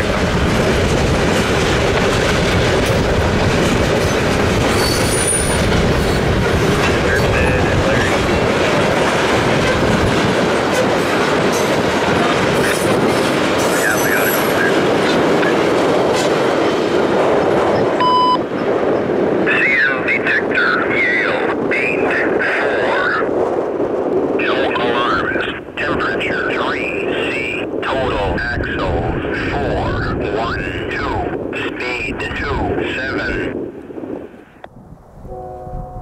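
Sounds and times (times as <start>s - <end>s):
freight train wheels rumbling: 0.0s - 20.1s
high wheel squeals: 4.7s - 6.2s
short electronic beep: 18.0s - 18.4s.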